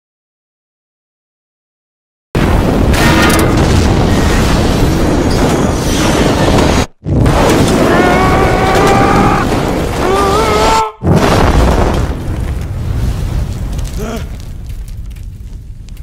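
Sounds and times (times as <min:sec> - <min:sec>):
explosion rumble: 0:02.4 - 0:16.0.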